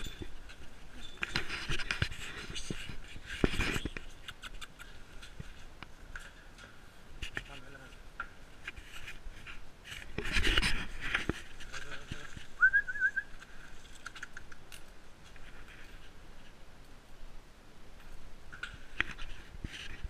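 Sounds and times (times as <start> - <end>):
footsteps: 0.0 - 14.0
rustling past shrubs: 0.0 - 20.0
high warbling whistle: 12.6 - 13.3.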